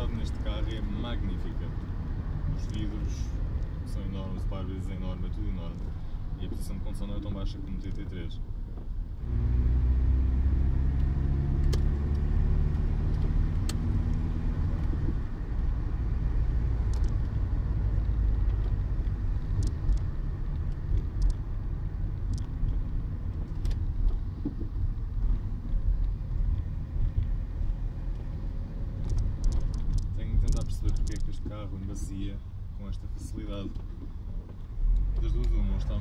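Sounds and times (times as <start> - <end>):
tyres rumbling on wet road: 8.8 - 32.0
car engine accelerating: 9.2 - 21.4.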